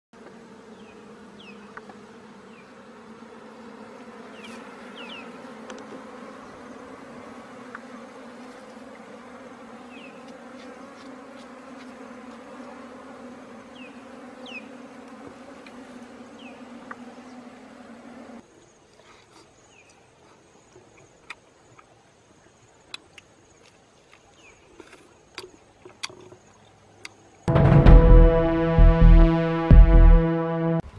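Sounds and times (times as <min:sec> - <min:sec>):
bees buzzing: 0:00.2 - 0:18.4, 0:27.5 - 0:30.9.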